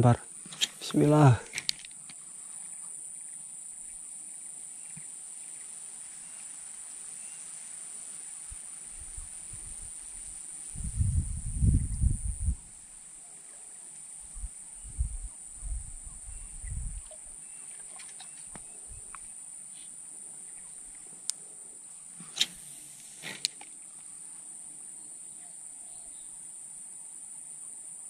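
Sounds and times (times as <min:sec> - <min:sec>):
crickets chirping: 0:00.0 - 0:28.0
sharp clicks: 0:00.5 - 0:02.0, 0:23.2 - 0:23.7.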